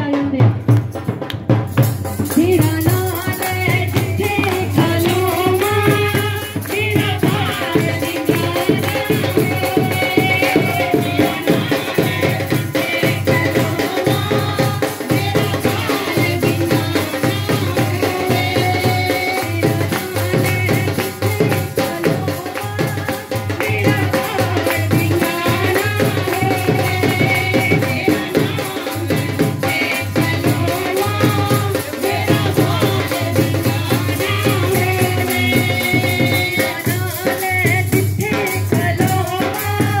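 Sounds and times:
women singing into microphones: 0.0 - 0.8, 2.0 - 40.0
drum beat: 0.0 - 40.0
jingling hand percussion: 0.0 - 40.0.

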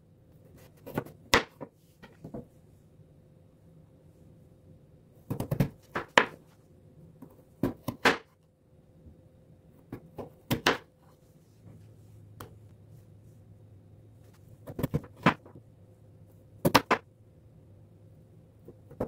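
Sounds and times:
knife slicing potato on cutting board: 0.6 - 1.6.

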